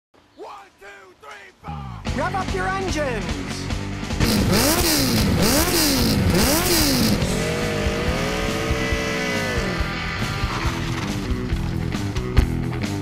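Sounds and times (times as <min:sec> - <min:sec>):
motorcycle engine revving: 0:03.8 - 0:12.2.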